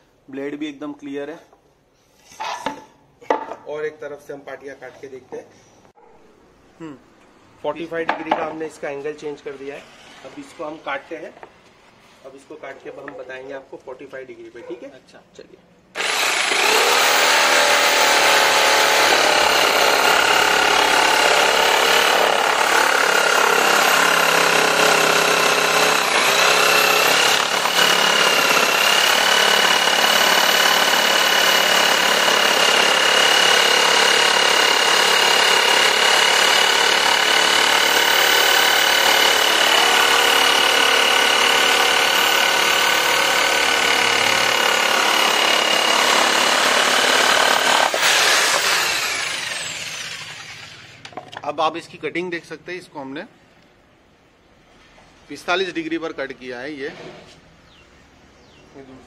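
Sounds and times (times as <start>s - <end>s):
jigsaw motor whine: 16.0s - 51.2s
saw blade cutting wood: 16.0s - 51.2s.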